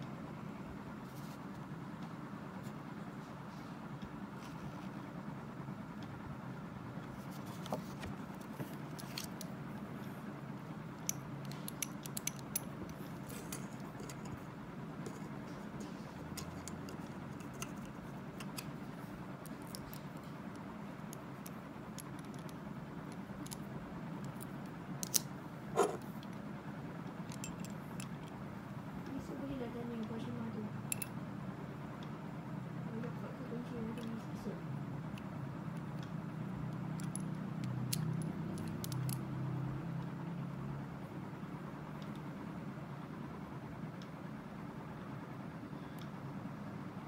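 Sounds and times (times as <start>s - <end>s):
padlock clicking and rattling: 8.4s - 9.5s, 11.0s - 14.4s, 16.3s - 18.8s, 19.4s - 26.0s, 27.2s - 28.4s, 30.9s - 31.2s, 37.0s - 39.3s.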